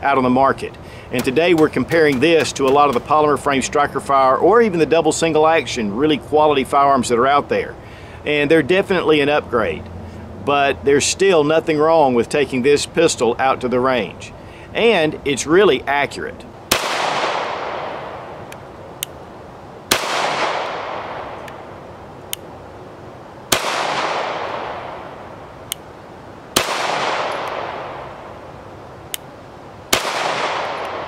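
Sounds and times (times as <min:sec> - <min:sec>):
pistol shots with echo: 0:16.7 - 0:18.3, 0:19.9 - 0:21.4, 0:23.5 - 0:25.1, 0:26.6 - 0:28.1, 0:29.9 - 0:31.0.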